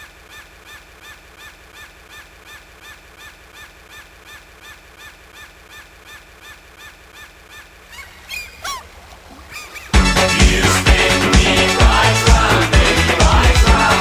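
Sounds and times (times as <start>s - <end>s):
gull calling: 0.0s - 10.1s.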